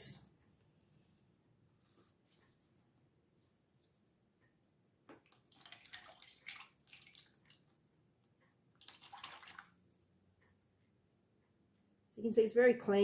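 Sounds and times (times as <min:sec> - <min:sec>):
oil splashing into bucket: 0:05.2 - 0:07.6, 0:08.8 - 0:09.7.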